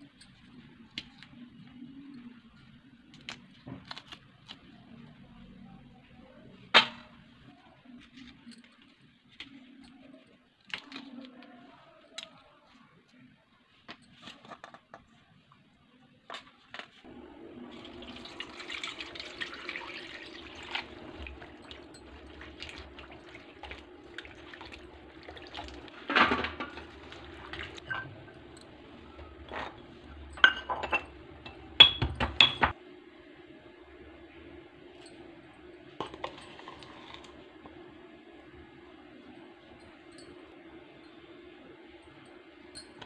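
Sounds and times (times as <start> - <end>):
hands sloshing water in bowl: 17.7 - 27.9
steel dishes clinking: 21.1 - 32.7.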